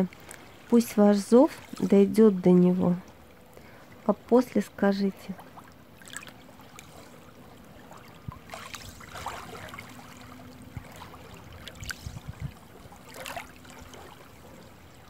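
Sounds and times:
water lapping against rocks: 0:05.1 - 0:15.0.

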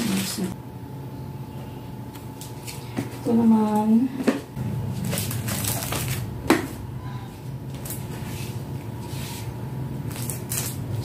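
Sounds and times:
low hum: 0:04.5 - 0:09.0
plastic packaging rustling: 0:04.8 - 0:06.4, 0:10.0 - 0:11.0.

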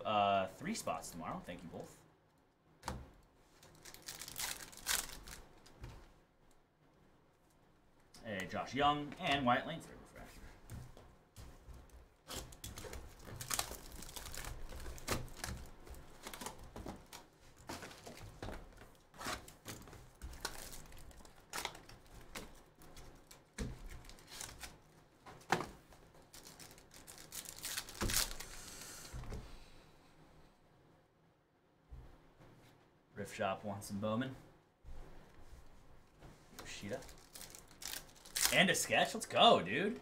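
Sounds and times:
cardboard box and cards rustling: 0:03.6 - 0:05.5, 0:11.4 - 0:28.6, 0:36.6 - 0:38.9
plastic wrap crinkling and tearing: 0:03.6 - 0:05.7, 0:12.2 - 0:18.3, 0:19.1 - 0:24.9, 0:26.1 - 0:28.8, 0:36.7 - 0:38.9.

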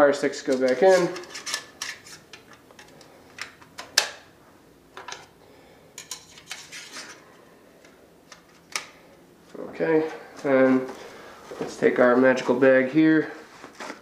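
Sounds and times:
metal sticks clinking and scraping: 0:00.4 - 0:03.0.

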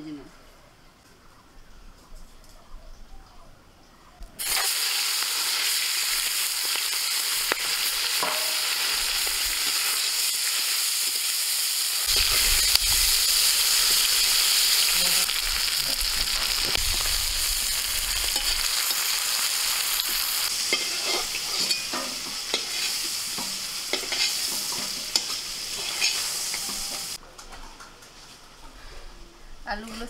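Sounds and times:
prawns sizzling in oil: 0:04.4 - 0:27.2.

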